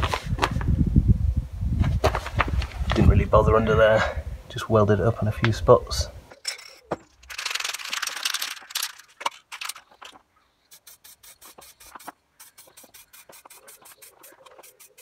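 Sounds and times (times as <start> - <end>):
spray can ball rattling: 7.1 - 15.0
spray hissing: 10.7 - 15.0.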